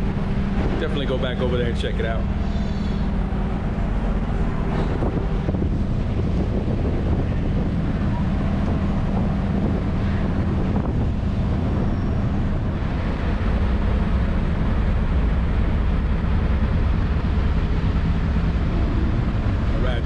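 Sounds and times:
ferry engines droning: 0.0 - 20.0
wind rushing: 2.2 - 14.0.

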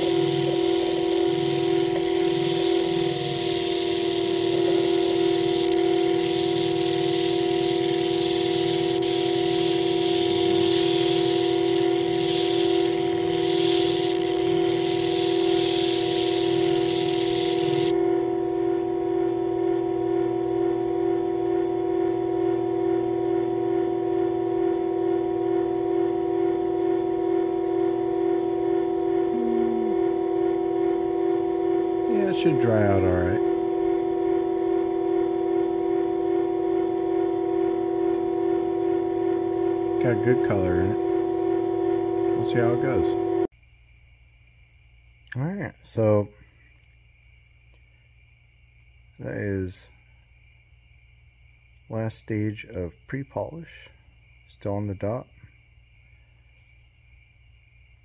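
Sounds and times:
motor humming: 0.0 - 43.5.

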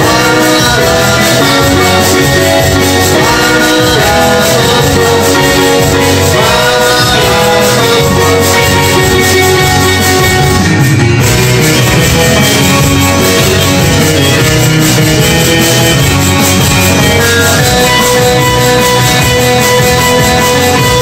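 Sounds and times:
man singing: 0.0 - 10.6
keyboard backing accompaniment: 0.0 - 21.0.

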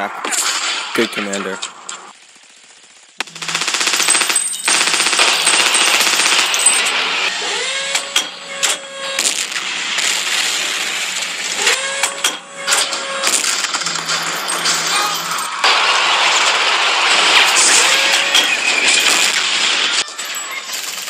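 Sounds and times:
steady battle din: 0.0 - 2.2, 3.2 - 20.0
scattered gunshots: 0.0 - 21.0
machine-gun fire: 0.3 - 7.3, 15.6 - 20.0.

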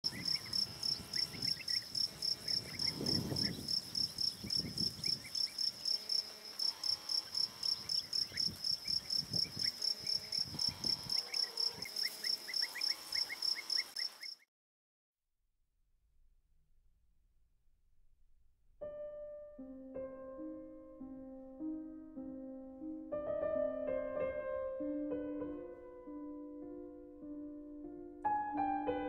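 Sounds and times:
cricket chirping: 0.0 - 14.4.

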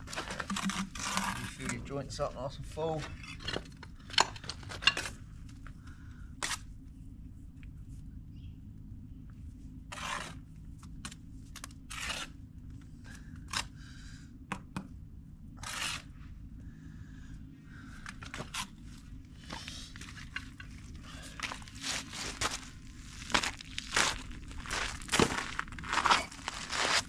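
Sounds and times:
low rumble: 0.0 - 27.0
trowel scraping mortar: 0.2 - 1.8, 9.9 - 10.4, 11.9 - 12.4, 15.6 - 16.1.

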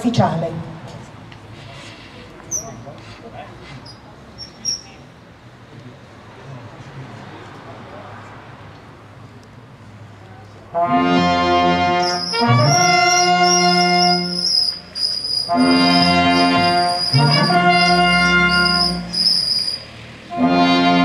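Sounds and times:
brass band playing: 10.7 - 19.7, 20.3 - 21.0.

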